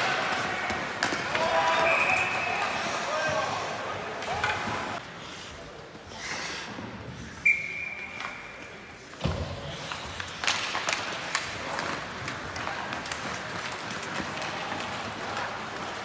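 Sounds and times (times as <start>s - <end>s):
sticks and skates clattering: 0.0s - 5.0s, 8.1s - 16.0s
echoing rink noise: 0.0s - 16.0s.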